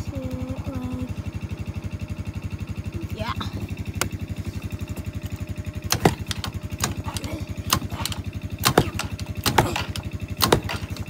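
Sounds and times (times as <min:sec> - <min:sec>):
quad bike engine idling: 0:00.0 - 0:11.0
sharp clicks and knocks: 0:05.9 - 0:11.0.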